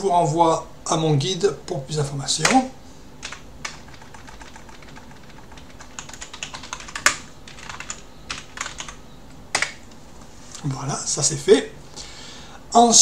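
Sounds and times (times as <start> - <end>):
computer keyboard typing: 3.2 - 9.8.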